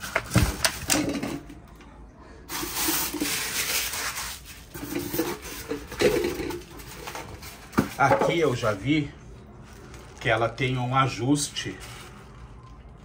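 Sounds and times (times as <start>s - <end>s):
rubbing and rustling: 2.5s - 8.7s.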